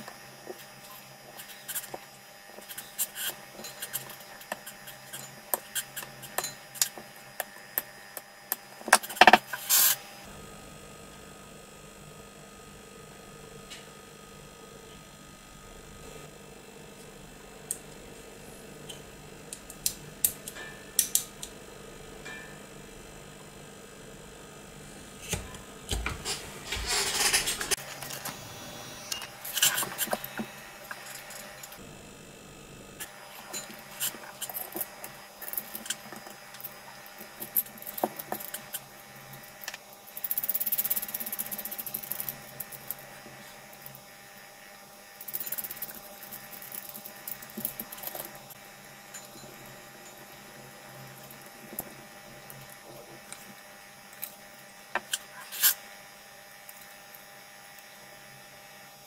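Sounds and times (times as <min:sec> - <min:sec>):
rubbing and rustling: 0:26.2 - 0:27.9.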